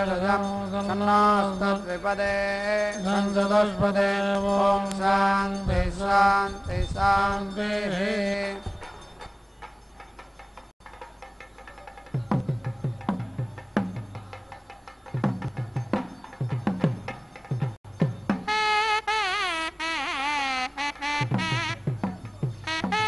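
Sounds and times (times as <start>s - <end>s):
mantras chanted on held pitch: 0.0s - 8.8s.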